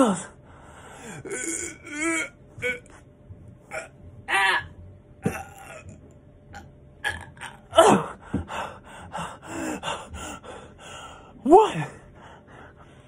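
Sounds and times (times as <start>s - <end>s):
man grunting with effort: 7.7s - 8.2s.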